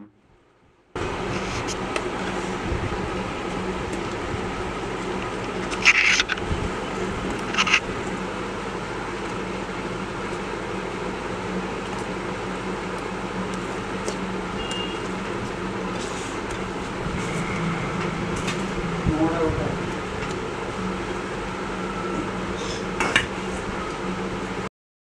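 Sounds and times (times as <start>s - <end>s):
low background drone: 15.4s - 23.0s.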